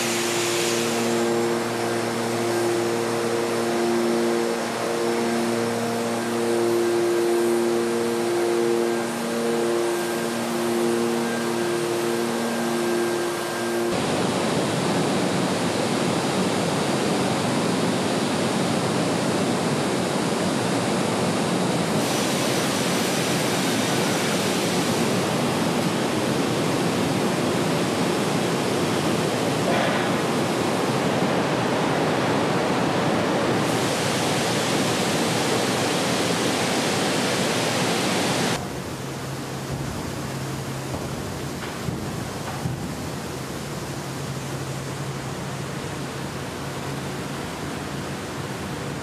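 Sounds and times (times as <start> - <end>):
steel rolling line hiss: 0.0 - 17.0, 21.4 - 49.0.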